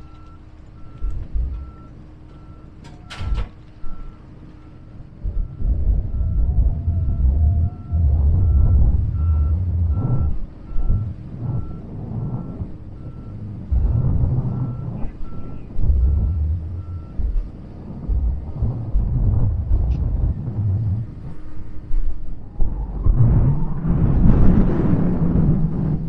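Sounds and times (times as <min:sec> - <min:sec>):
backup alarm beeping: 0:00.0 - 0:21.7
low engine rumble: 0:00.0 - 0:26.0.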